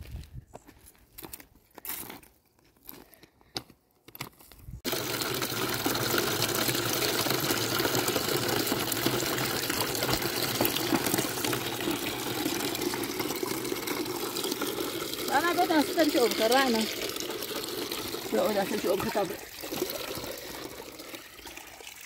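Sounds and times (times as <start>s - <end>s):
water gushing from a pipe: 4.8s - 22.0s.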